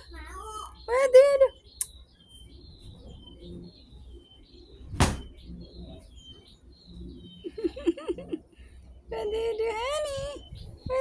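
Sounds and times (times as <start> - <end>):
small birds chirping: 0.0 - 11.0
sharp knock: 4.9 - 5.3.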